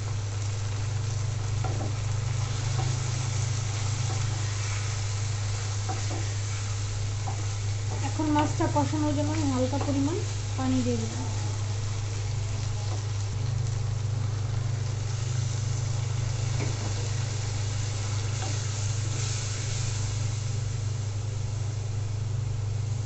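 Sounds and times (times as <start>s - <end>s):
curry sizzling and bubbling: 0.0s - 23.0s
wooden spatula stirring: 1.1s - 10.4s.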